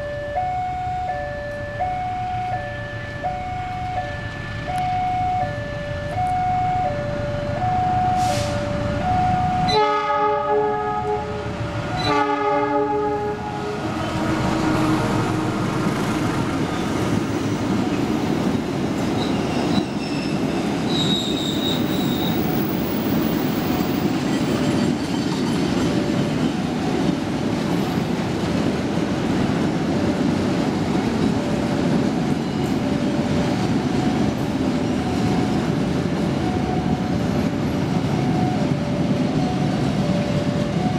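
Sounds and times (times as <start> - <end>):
crossing signal two-tone beeps: 0.0 - 9.9, 36.4 - 40.9
train horn blasts: 9.6 - 11.4, 12.0 - 16.5
train wheels rumbling and rattling: 13.4 - 40.9.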